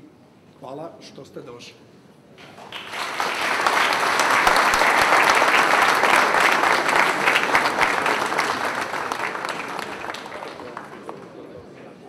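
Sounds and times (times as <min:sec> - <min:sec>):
audience applauding: 0:02.4 - 0:11.4.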